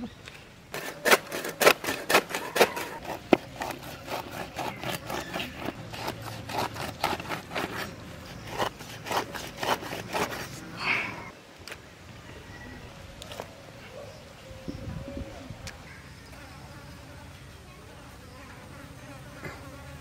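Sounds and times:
blade sawing through flesh: 0:00.7 - 0:10.7.

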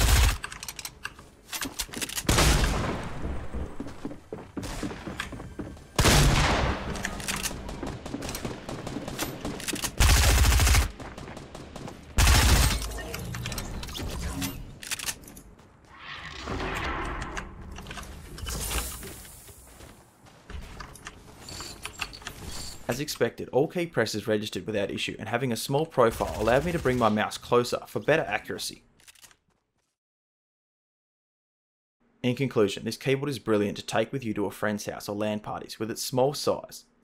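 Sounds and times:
video game gunfire: 0:06.0 - 0:13.1.

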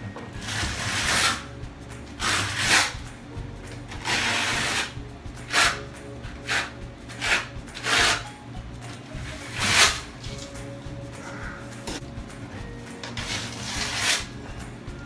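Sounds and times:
trowel scraping adhesive on wall: 0:00.4 - 0:01.5, 0:02.2 - 0:03.0, 0:03.9 - 0:05.8, 0:06.4 - 0:08.3, 0:09.3 - 0:10.1, 0:13.1 - 0:14.3.

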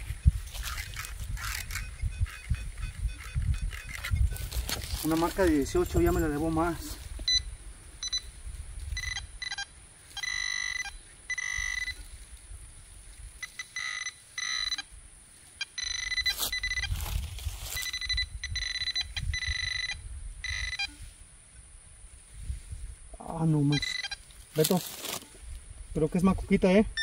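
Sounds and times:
soil scraping and rustling: 0:00.0 - 0:07.3, 0:16.2 - 0:18.1, 0:22.2 - 0:26.1
metal detector pinpointer beeping: 0:01.4 - 0:12.1, 0:13.4 - 0:14.9, 0:15.6 - 0:21.0, 0:23.6 - 0:24.7.

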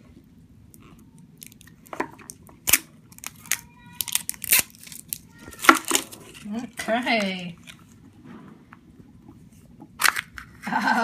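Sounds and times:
plastic wrapper crackling: 0:01.4 - 0:06.5.

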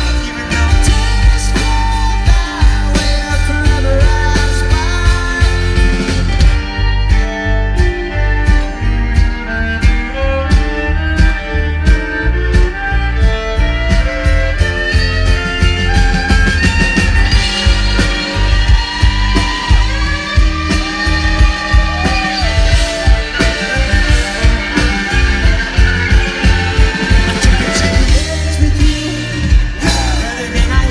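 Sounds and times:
guitar: 0:00.0 - 0:30.9
live band music: 0:00.0 - 0:30.9
bowed fiddle sliding: 0:06.3 - 0:29.6
drum beat: 0:09.3 - 0:30.9.

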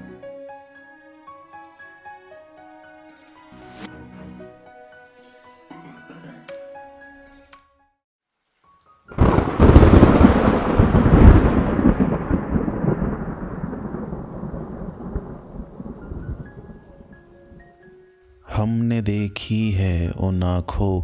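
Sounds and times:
rain: 0:08.3 - 0:18.5
thunderclap rumbling: 0:09.1 - 0:17.2.

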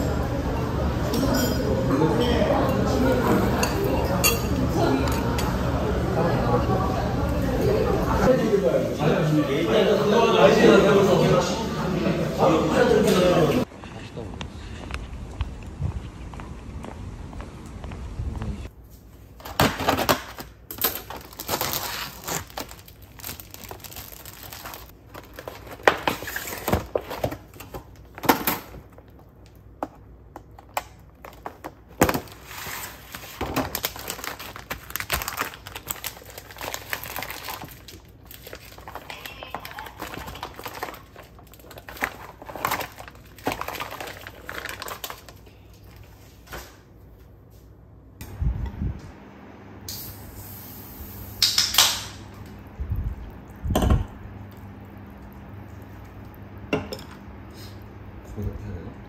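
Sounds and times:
plastic packaging crinkling and tearing: 0:19.5 - 0:29.2, 0:30.6 - 0:46.2.

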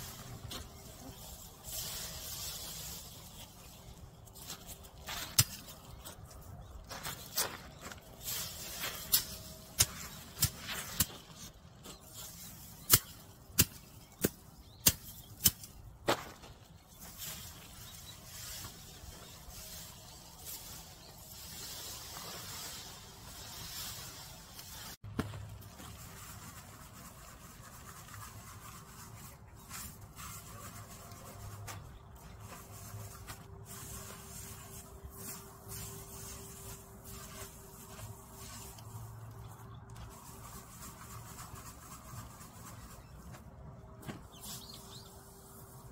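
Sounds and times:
seeds rustling in plastic sieve: 0:00.0 - 0:05.2, 0:17.0 - 0:43.4
metal pole striking plants: 0:05.1 - 0:05.8, 0:08.6 - 0:11.5, 0:12.8 - 0:15.8.

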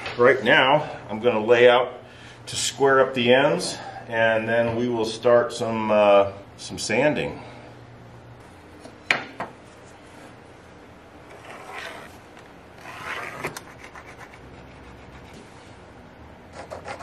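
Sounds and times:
tool scraping on wood: 0:11.3 - 0:12.2.

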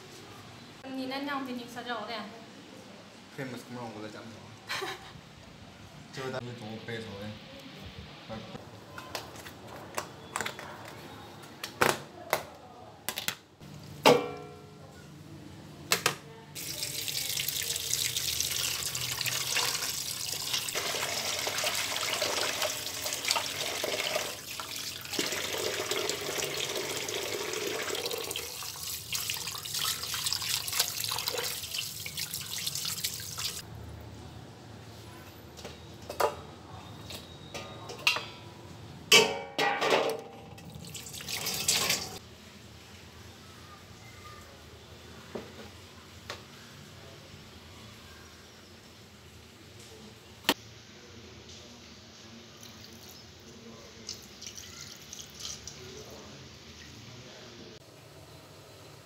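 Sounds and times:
kitchen things knocking and clattering: 0:14.0 - 0:14.7, 0:37.5 - 0:38.5, 0:39.1 - 0:40.6
tap water running: 0:16.6 - 0:33.6, 0:40.6 - 0:42.2
steel pot and lid: 0:39.1 - 0:40.6.

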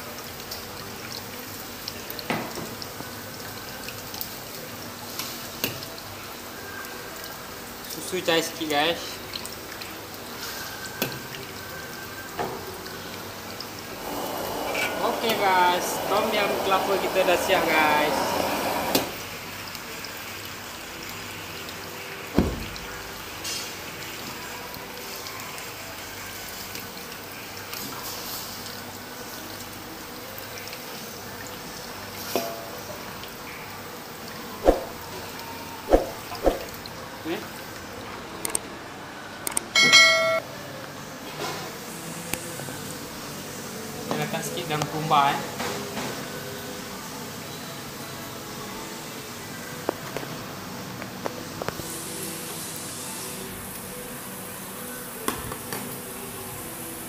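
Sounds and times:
broth simmering in a wok: 0:00.0 - 0:39.4, 0:40.4 - 0:57.0
soup simmering in a wok: 0:09.1 - 0:22.3.

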